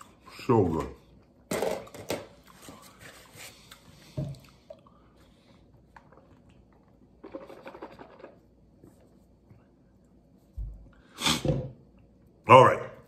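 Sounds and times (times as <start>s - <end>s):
gulping water: 5.8s - 8.5s.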